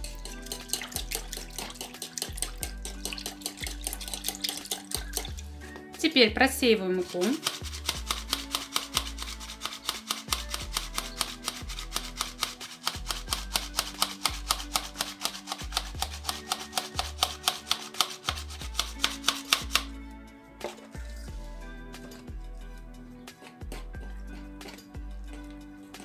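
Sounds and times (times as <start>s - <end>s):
flour sifter rasping clicks: 7.2s - 19.9s.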